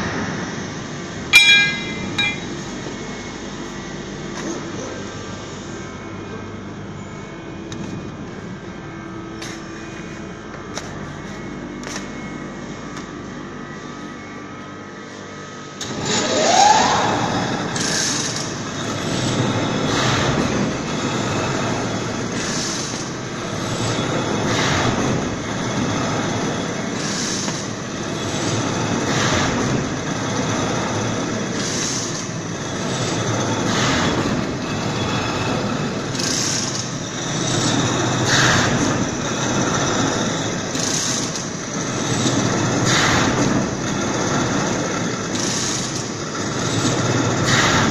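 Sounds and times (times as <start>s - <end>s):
veneer slicer running: 0.0s - 6.4s, 15.7s - 47.9s
rising machine whine: 0.0s - 29.0s.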